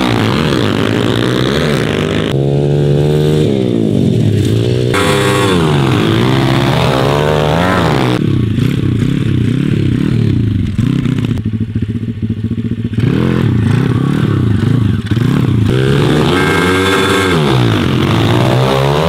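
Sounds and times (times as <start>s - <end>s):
motorbike engine revving: 0.0s - 19.0s.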